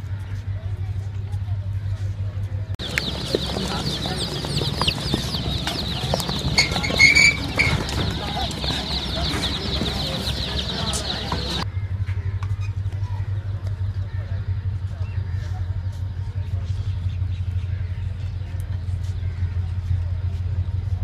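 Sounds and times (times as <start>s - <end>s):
steady low hum: 0.0s - 21.0s
chicks cheeping: 2.8s - 11.6s.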